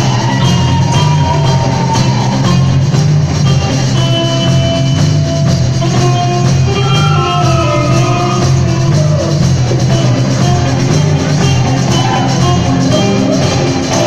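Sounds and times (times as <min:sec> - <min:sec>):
rock band playing: 0:00.0 - 0:14.0.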